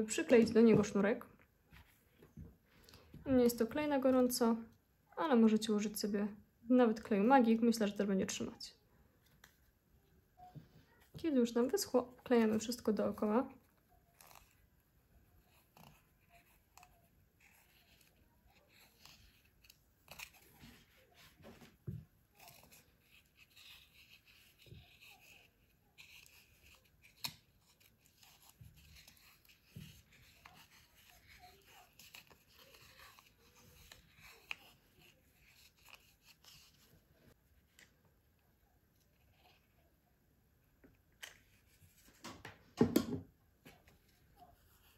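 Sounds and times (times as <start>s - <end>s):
cord rustling: 13.6s - 39.9s.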